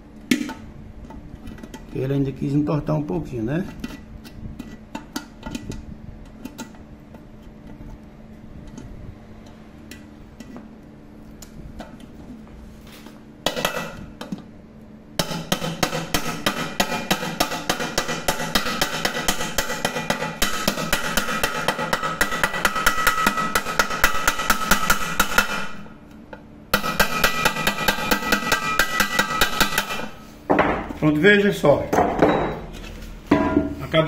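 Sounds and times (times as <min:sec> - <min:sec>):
hammer tapping on metal: 0:26.8 - 0:30.8.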